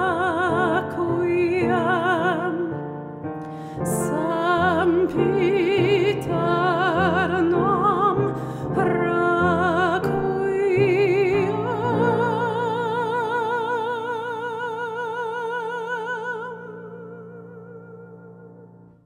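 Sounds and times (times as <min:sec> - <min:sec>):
woman singing with vibrato: 0:00.0 - 0:02.9, 0:03.6 - 0:18.8
stage piano: 0:00.0 - 0:19.0.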